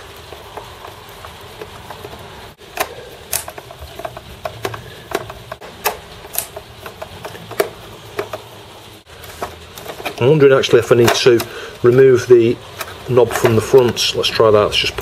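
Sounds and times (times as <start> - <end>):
screwdriver clicking and scraping: 0.4 - 8.5, 12.7 - 14.0.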